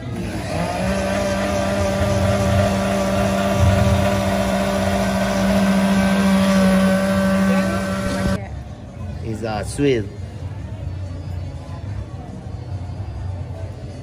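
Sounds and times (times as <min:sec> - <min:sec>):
blender running: 0:00.0 - 0:08.4.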